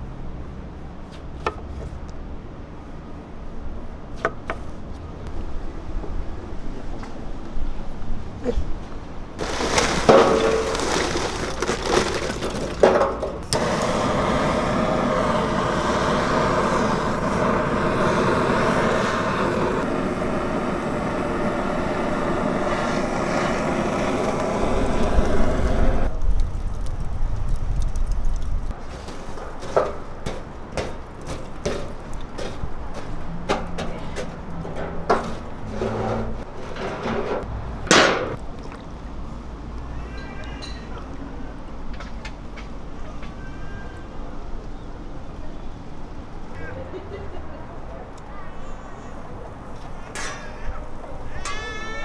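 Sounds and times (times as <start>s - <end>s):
gas torch flame roaring: 9.4s - 27.6s.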